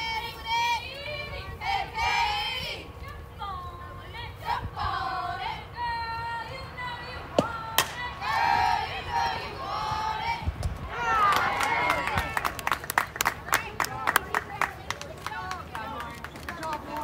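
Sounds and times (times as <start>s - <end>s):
bat cracking ball: 7.4s - 8.0s.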